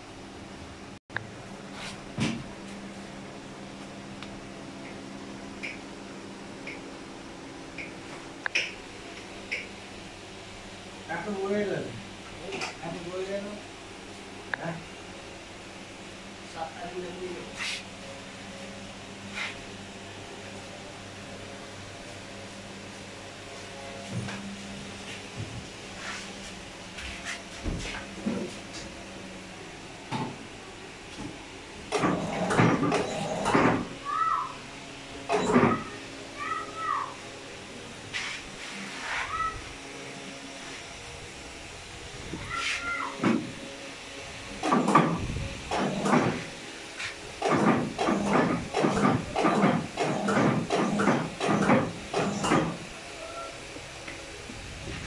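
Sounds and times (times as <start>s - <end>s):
low machinery hum: 0.0s - 55.0s
cloth rag rubbing on rollers: 17.5s - 17.9s, 19.3s - 19.6s, 25.9s - 28.6s, 38.1s - 39.5s, 42.6s - 43.0s, 47.0s - 47.2s.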